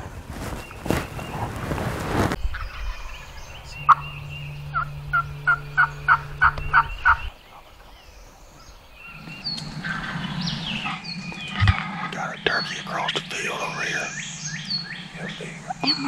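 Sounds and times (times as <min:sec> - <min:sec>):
turkey calling: 0:03.9 - 0:07.9.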